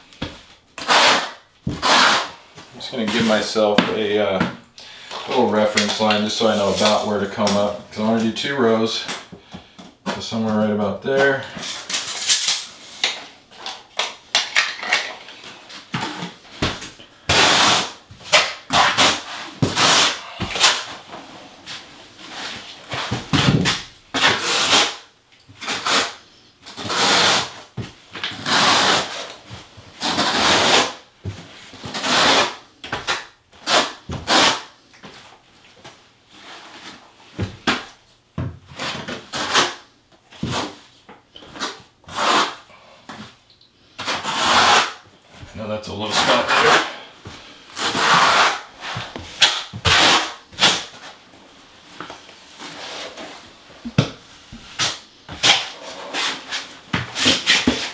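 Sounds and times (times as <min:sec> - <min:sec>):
trowel scraping mortar: 0:00.8 - 0:02.4, 0:44.0 - 0:45.0, 0:47.8 - 0:50.8.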